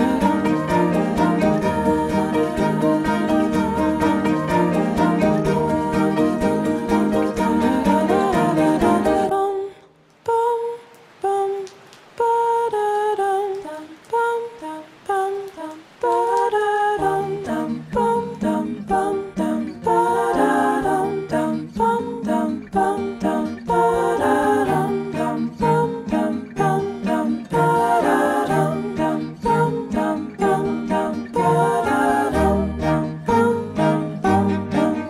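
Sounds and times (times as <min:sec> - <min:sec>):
light melody with sung line: 0:00.0 - 0:09.3, 0:17.0 - 0:35.0.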